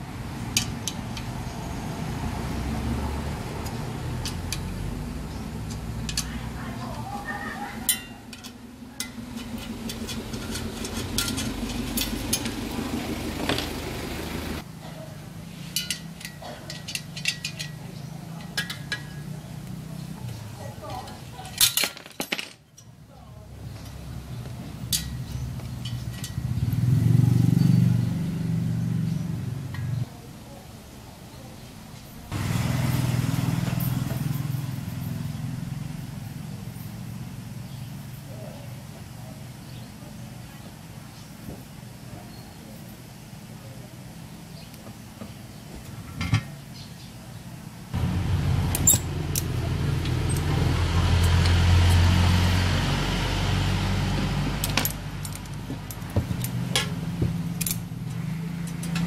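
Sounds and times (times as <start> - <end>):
engine running with low hum: 0.0 - 14.7, 23.6 - 30.1, 32.3 - 39.8, 47.8 - 59.0.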